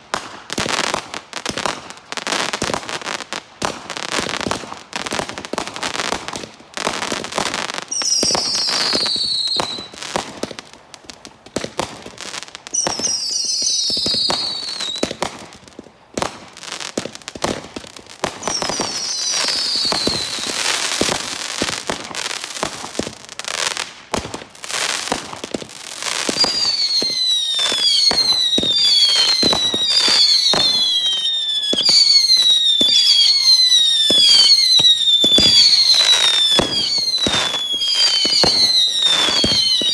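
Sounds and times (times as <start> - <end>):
firework crackling bursts: 0.0 - 39.9
whistling firework shots: 0.1 - 10.6, 11.5 - 16.4, 17.0 - 39.9
whistles falling in pitch: 26.4 - 39.9.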